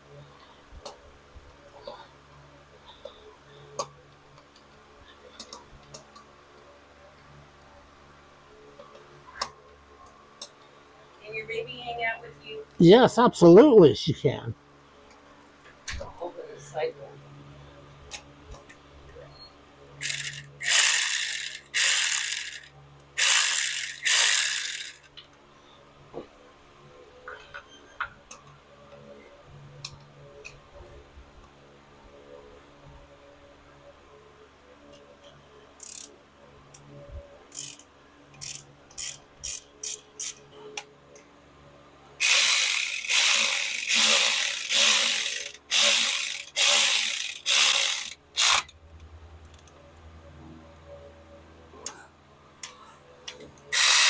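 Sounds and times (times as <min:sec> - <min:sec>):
powered ratchet running: 0:20.0 - 0:25.1, 0:35.8 - 0:36.1, 0:37.5 - 0:37.8, 0:38.4 - 0:40.4, 0:42.2 - 0:48.7, 0:53.7 - 0:54.0.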